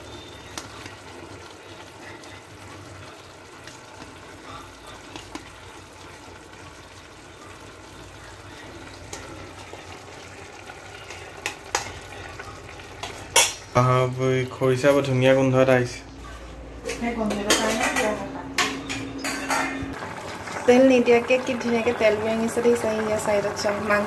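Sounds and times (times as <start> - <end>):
food bubbling and sizzling: 0.0 - 24.0
spoon tapping metal pan: 13.0 - 13.7, 17.3 - 20.0.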